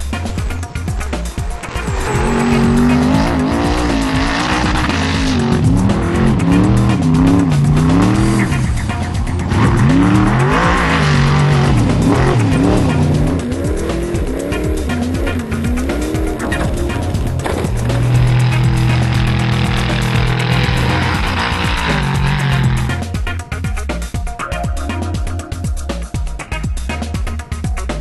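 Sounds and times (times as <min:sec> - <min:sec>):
background music: 0:00.0 - 0:28.0
truck engine revving hard: 0:00.2 - 0:23.2.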